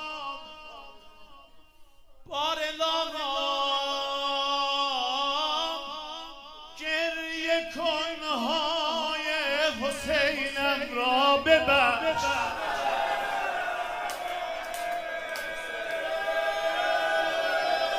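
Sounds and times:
man singing amplified: 0:00.0 - 0:12.9.

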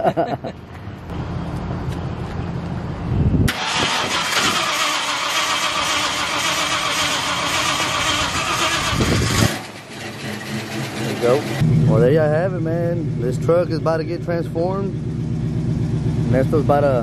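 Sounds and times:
pickup engine cranking and starting: 0:03.5 - 0:11.6.

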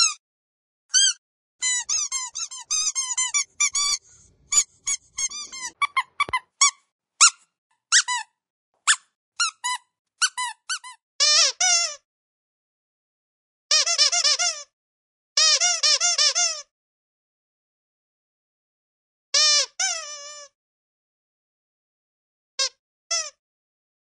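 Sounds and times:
squeaky dog toy squeaking: 0:00.0 - 0:00.2, 0:00.9 - 0:12.0, 0:13.7 - 0:14.7, 0:15.4 - 0:16.7, 0:19.3 - 0:20.6, 0:22.6 - 0:23.4.

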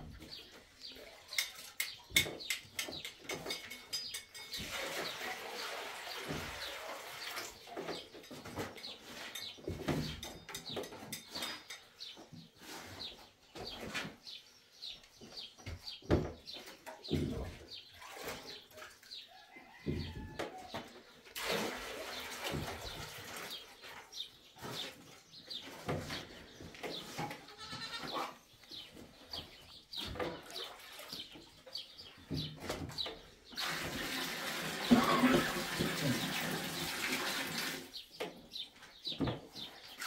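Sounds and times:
birds chirping: 0:00.0 - 0:21.3, 0:22.1 - 0:33.6, 0:37.9 - 0:40.0
trowel scraping and tapping: 0:01.3 - 0:04.7.

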